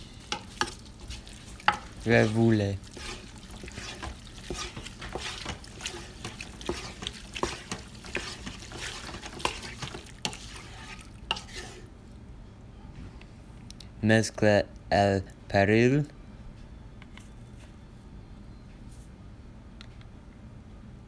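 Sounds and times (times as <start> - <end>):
wooden spoon scraping a pot: 0.0 - 11.9.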